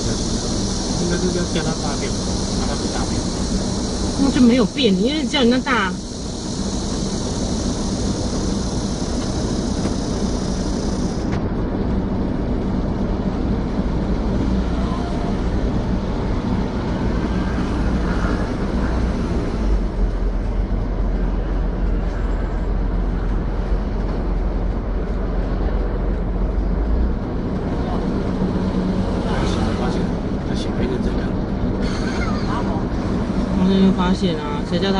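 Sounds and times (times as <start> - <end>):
high hiss: 0.0 - 11.4, 27.9 - 34.9
low street rumble: 0.0 - 34.9.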